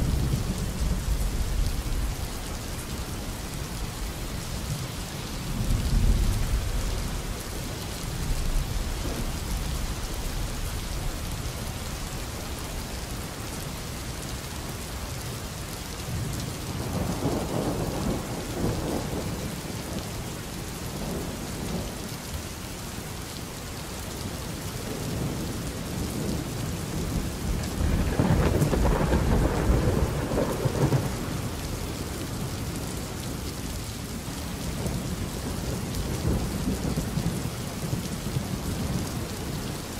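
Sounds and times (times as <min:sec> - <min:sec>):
steady rain: 0:00.0 - 0:39.9
rolling thunder: 0:27.0 - 0:32.1.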